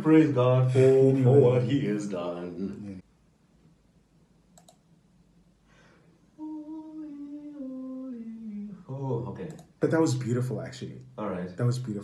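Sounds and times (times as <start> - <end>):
small click: 4.6 - 4.8
man humming held notes: 6.4 - 8.9.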